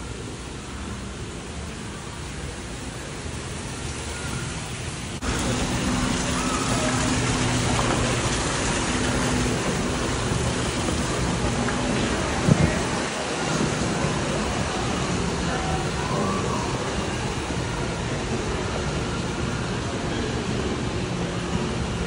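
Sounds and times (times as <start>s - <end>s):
store ambience hiss: 0.0s - 22.0s.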